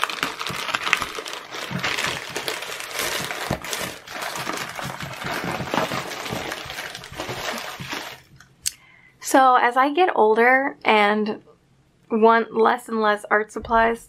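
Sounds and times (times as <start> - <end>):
plastic bag crinkling and tearing: 0.0 - 8.4.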